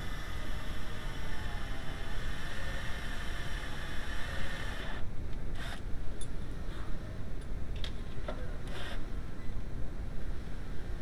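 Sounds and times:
cordless drill drilling metal: 0:00.0 - 0:05.8.

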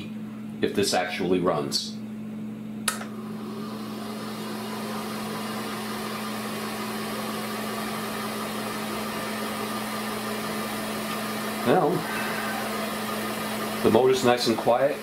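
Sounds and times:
projector motor humming: 0:00.0 - 0:15.0.

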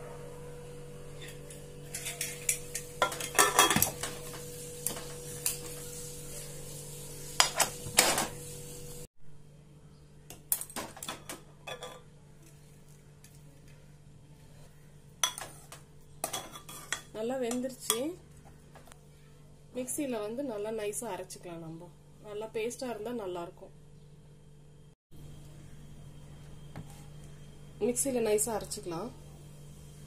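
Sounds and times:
steady low hum: 0:11.6 - 0:30.0.

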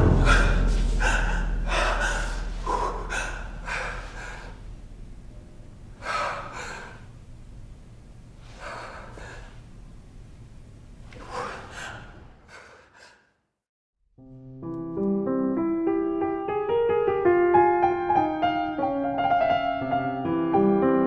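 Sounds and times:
piano playing: 0:00.0 - 0:05.3, 0:14.2 - 0:21.0.

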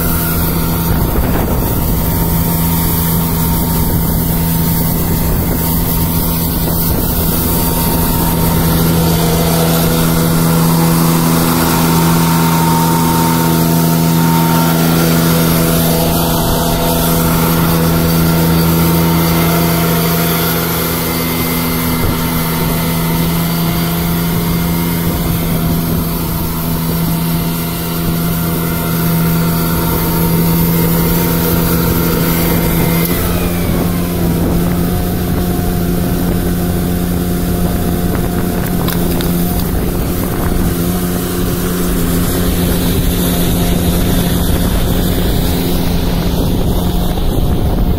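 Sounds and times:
constant rushing noise: 0:00.0 - 0:47.9
street sweeper engine and fan hum: 0:00.0 - 0:47.9.

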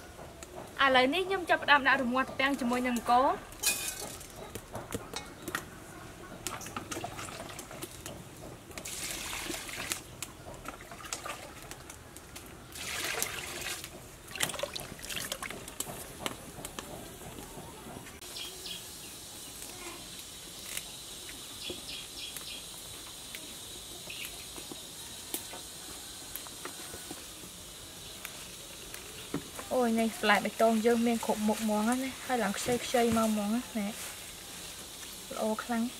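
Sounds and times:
pot boiling and bubbling: 0:00.0 - 0:35.9
water splashing in a pot: 0:06.4 - 0:08.1, 0:08.7 - 0:16.1.

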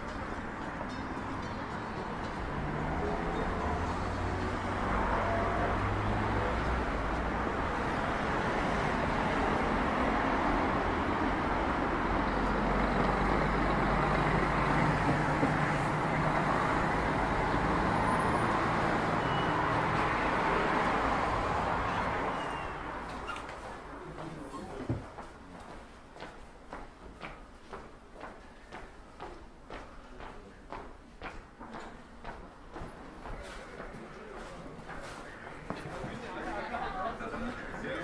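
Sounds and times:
cars driving past: 0:00.0 - 0:24.4.

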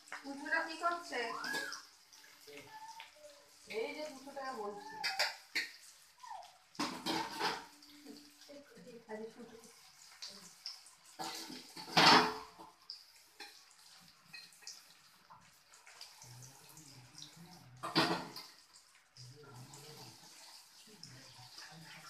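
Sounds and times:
water splashing in sink: 0:00.0 - 0:22.0
dishes being handled: 0:06.8 - 0:07.8.

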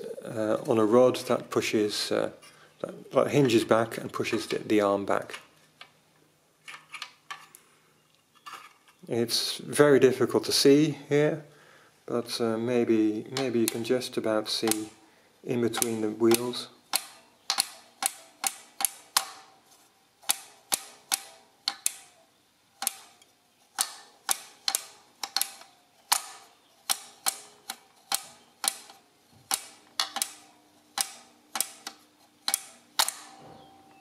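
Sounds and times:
adding machine wheels clicking: 0:12.8 - 0:19.6, 0:20.2 - 0:22.1, 0:22.8 - 0:34.0.

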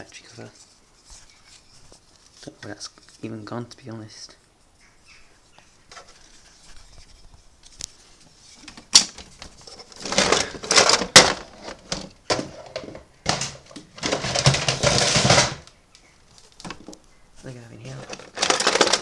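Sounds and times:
plastic toys clattering: 0:08.5 - 0:17.0, 0:17.8 - 0:19.0.

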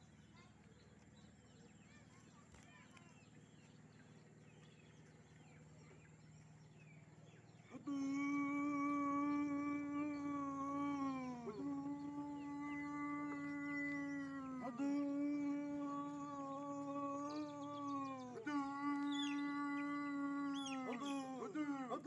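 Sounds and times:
man chanting long held notes: 0:07.6 - 0:22.0.

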